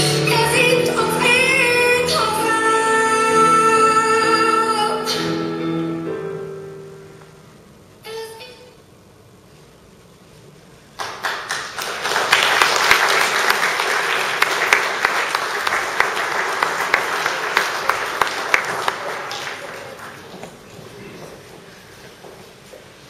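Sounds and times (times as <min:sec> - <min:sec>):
audience applause: 0:11.0 - 0:21.0.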